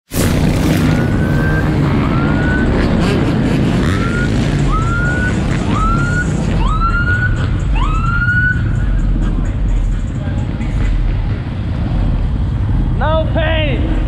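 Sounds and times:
vehicle engines rumbling: 0.1 - 14.0
police siren whoops: 0.9 - 3.1, 3.8 - 8.8.

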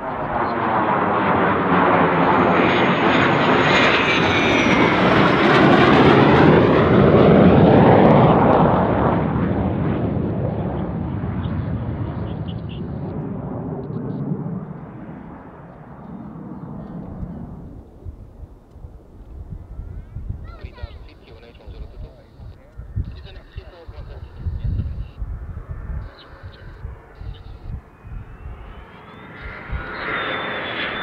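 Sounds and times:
high-pitched jet whine: 0.0 - 7.3, 11.4 - 18.0, 20.6 - 31.0
jet engine roar: 0.0 - 31.0.

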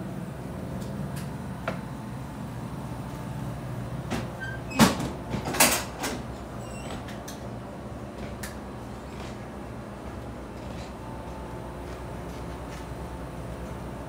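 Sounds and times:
steady low hum: 0.0 - 14.0
refrigerator door clunks: 4.0 - 7.3.

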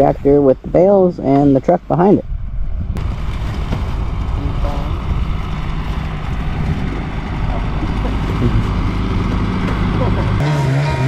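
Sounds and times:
snowmobile engine droning: 3.0 - 11.0.

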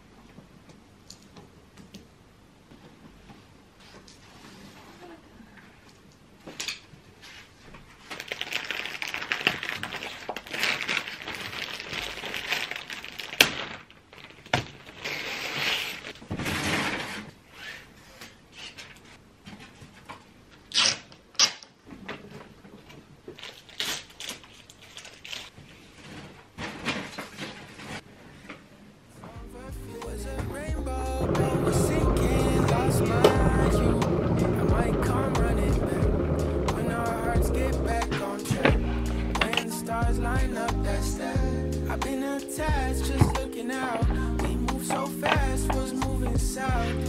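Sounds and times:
paper rustling and crinkling: 7.2 - 20.3, 22.0 - 28.6
paper blind snapping: 8.1 - 17.8, 23.4 - 25.6, 39.3 - 39.8.

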